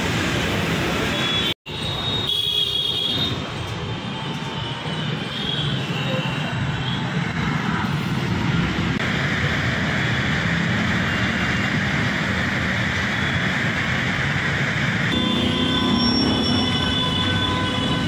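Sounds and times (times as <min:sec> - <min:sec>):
rumble of passing vehicles: 0:03.3 - 0:18.0.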